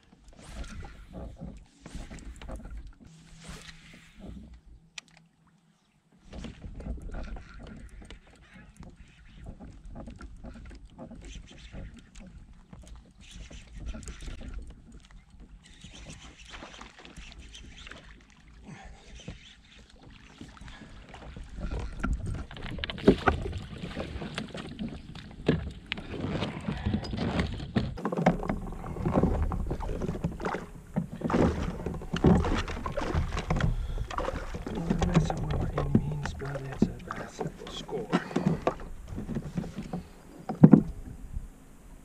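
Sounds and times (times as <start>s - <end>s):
water slapping against hull: 6.2s - 41.6s.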